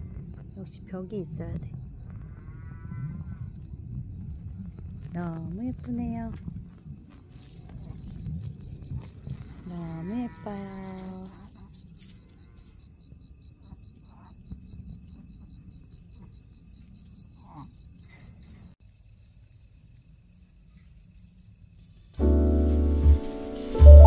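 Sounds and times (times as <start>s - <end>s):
crickets chirping: 0.0s - 22.7s
loud music: 23.0s - 24.0s.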